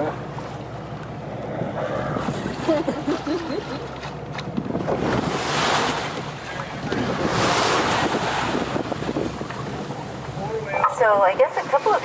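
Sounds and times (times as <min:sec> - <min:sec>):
boat engine low hum: 0:00.0 - 0:12.0
sea water washing: 0:00.0 - 0:12.0
wind buffeting microphone: 0:01.4 - 0:03.6, 0:04.4 - 0:10.6.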